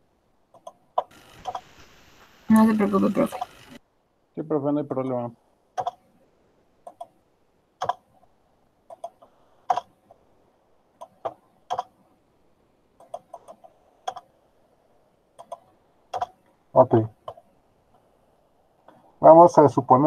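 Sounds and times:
keyboard clicks: 0.5s - 1.7s, 5.8s - 6.0s, 6.8s - 7.2s, 7.8s - 8.1s, 8.9s - 10.0s, 11.0s - 12.0s, 13.0s - 14.3s, 15.4s - 16.4s
computer mouse clicks: 0.5s - 1.8s, 5.8s - 6.1s, 6.8s - 7.2s, 7.8s - 8.2s, 8.9s - 10.2s, 11.0s - 12.0s, 13.0s - 14.3s, 15.4s - 16.4s.

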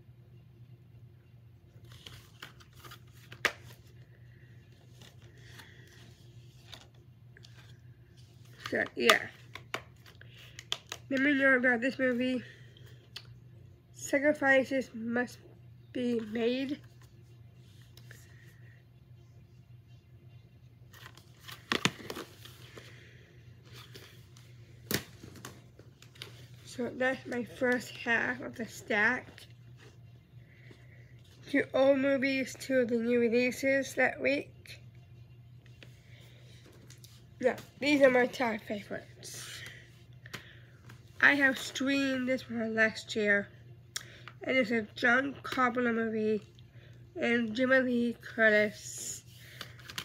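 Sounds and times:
steady low hum: 0.0s - 50.0s
movie cases rustling: 20.9s - 30.0s.

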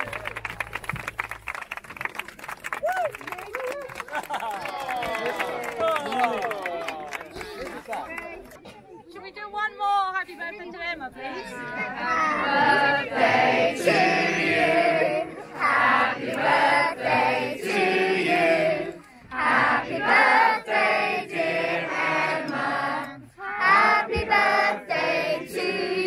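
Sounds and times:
children and adults singing: 11.4s - 26.0s.

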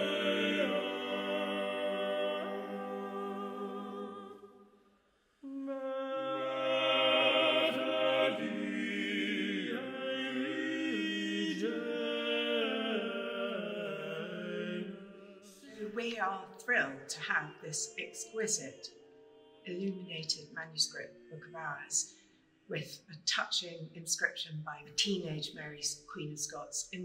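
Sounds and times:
unaccompanied choir singing: 0.0s - 4.7s, 5.4s - 22.1s.

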